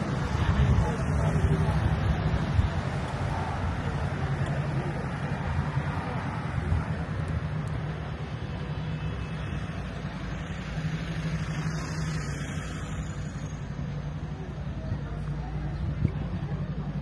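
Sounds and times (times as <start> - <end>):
car engines in slow traffic: 0.0 - 17.0
road noise: 0.0 - 17.0.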